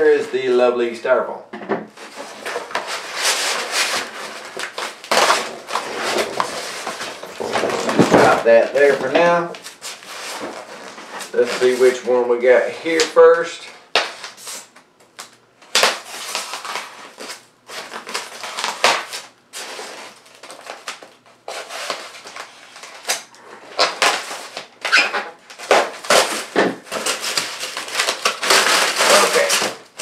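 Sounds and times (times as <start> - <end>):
styrofoam scraping and crunching: 2.0 - 12.1, 15.7 - 30.0
knife slicing packing tape: 2.7 - 7.1, 13.9 - 30.0.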